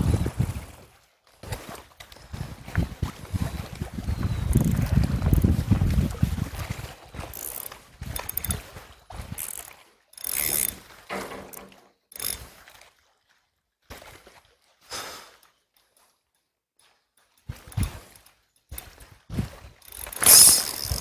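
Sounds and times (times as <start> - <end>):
wind rumble on microphone: 0.0 - 0.9, 2.3 - 7.2
fishing reel whirring and clicking: 4.1 - 11.0, 12.1 - 12.7, 19.7 - 21.0.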